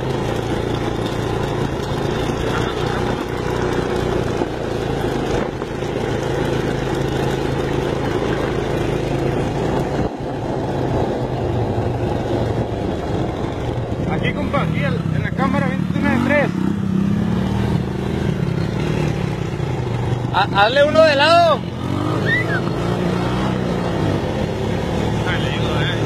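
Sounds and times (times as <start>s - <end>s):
atv engine running: 0.0s - 26.0s
wind noise on microphone: 9.1s - 14.5s.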